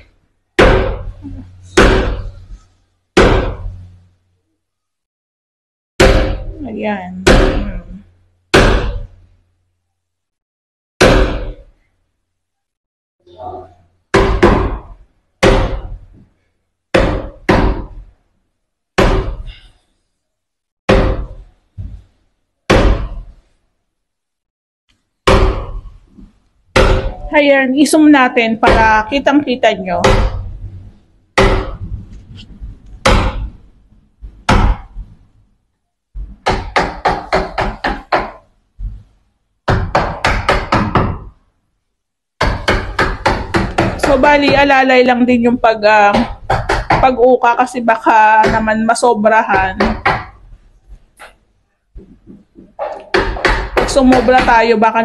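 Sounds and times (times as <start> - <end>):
hammer striking chisel in wood: 36.4 - 38.4, 42.4 - 44.2, 52.6 - 54.3.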